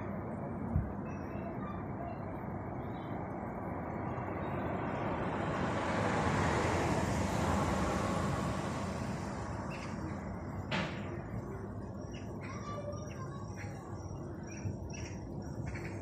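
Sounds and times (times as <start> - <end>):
distant traffic hum: 0.0 - 16.0
car passing on asphalt: 3.7 - 10.6.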